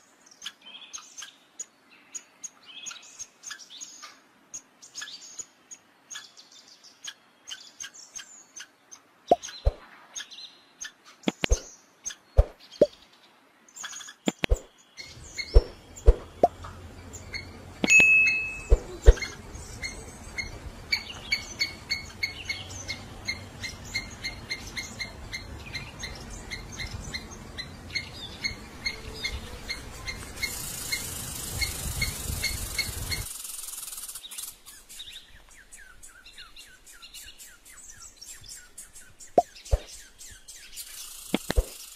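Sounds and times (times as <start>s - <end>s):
bird chirping: 0.0s - 41.9s
scattered clicks: 14.3s - 14.6s, 41.3s - 41.8s.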